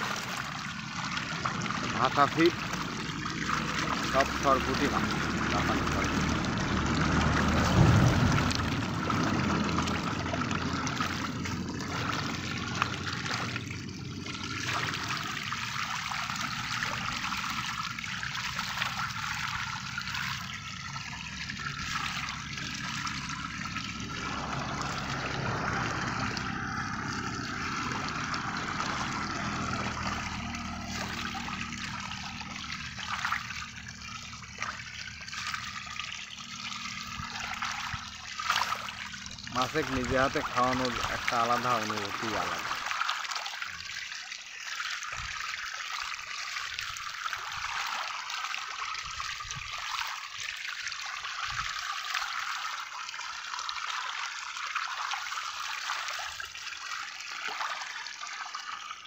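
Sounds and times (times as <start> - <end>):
fish splashing at water surface: 0.0 - 59.0.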